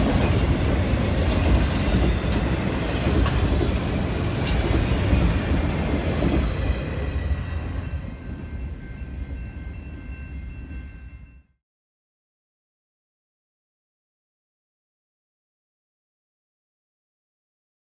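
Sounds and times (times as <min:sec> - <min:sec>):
freight train wheels rumbling on rails: 0:00.0 - 0:10.9.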